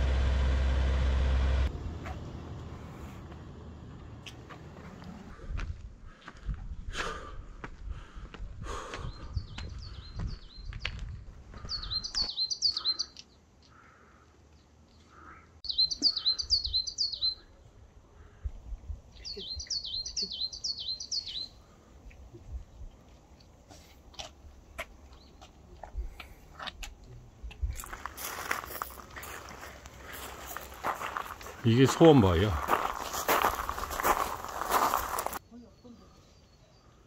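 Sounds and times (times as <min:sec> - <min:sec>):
songbird singing: 0:09.0 - 0:13.8, 0:14.5 - 0:17.8, 0:18.6 - 0:23.6, 0:24.6 - 0:37.0.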